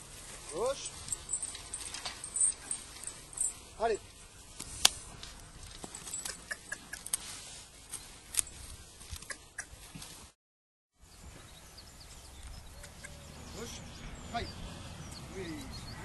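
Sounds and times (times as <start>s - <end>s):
harness chains clinking: 0.0s - 4.5s, 5.2s - 7.2s, 8.0s - 8.8s.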